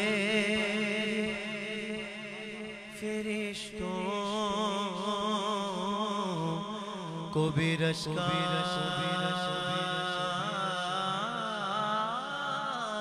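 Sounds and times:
man singing melismatic notes: 0:02.8 - 0:13.0.

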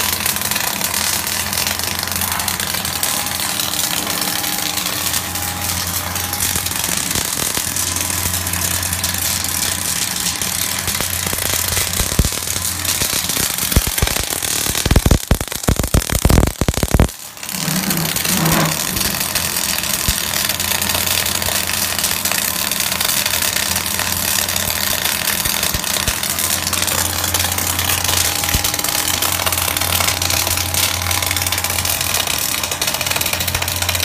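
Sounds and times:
welding arc crackling and hissing: 0:00.0 - 0:34.0
low hum: 0:02.0 - 0:19.5.

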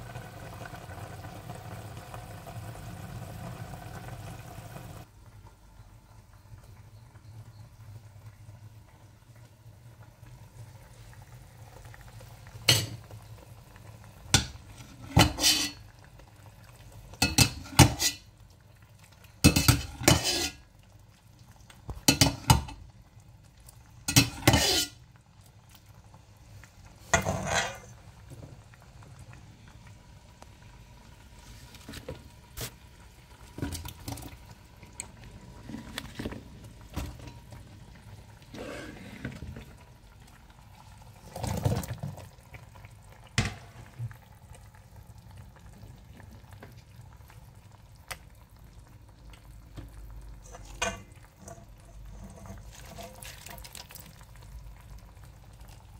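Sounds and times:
metal ladle scraping steel pot: 0:14.8 - 0:15.8, 0:17.3 - 0:18.3, 0:19.5 - 0:20.6, 0:24.1 - 0:25.0, 0:27.1 - 0:27.9, 0:50.4 - 0:53.5.

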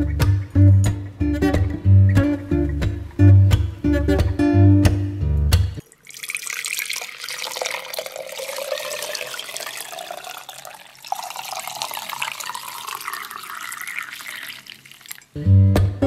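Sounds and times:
milk pouring into glass jug: 0:05.8 - 0:15.4.

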